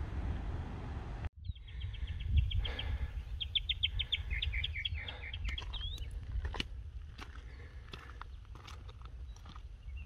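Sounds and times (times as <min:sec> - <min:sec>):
songbird singing: 0:01.4 - 0:06.5, 0:07.3 - 0:10.0.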